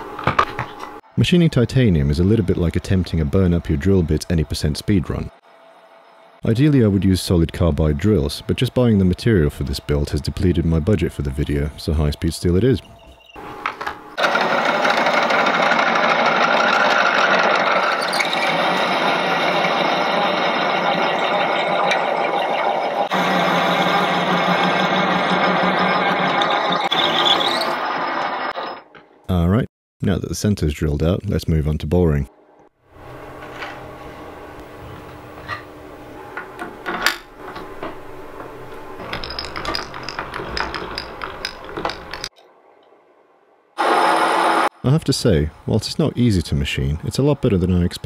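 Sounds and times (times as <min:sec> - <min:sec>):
metal lathe drilling metal: 0:14.2 - 0:28.8.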